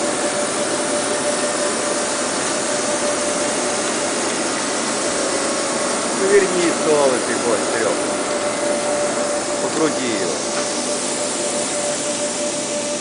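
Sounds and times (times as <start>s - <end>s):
boring mill whirring and whining: 0.0s - 13.0s.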